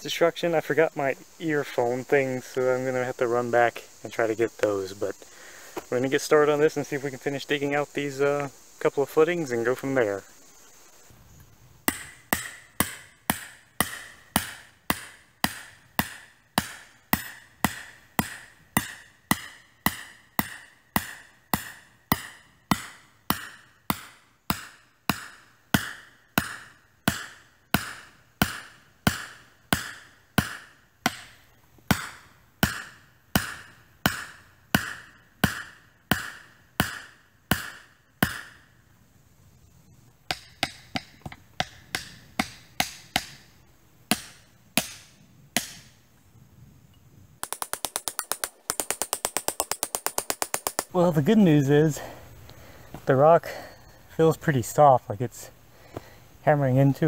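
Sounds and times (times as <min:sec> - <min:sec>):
steel tool striking rock: 0:11.9 - 0:38.6, 0:40.3 - 0:43.4, 0:44.1 - 0:45.9, 0:47.4 - 0:51.0.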